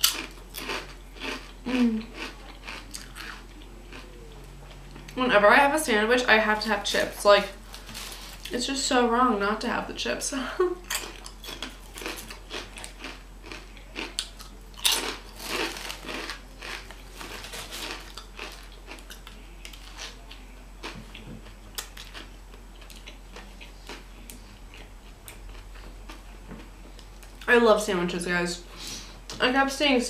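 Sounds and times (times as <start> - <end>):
crunching crisp chips: 0.0 - 5.2, 6.9 - 8.6, 10.8 - 26.3
sandwich paper rustling: 6.6 - 8.6, 15.2 - 18.7.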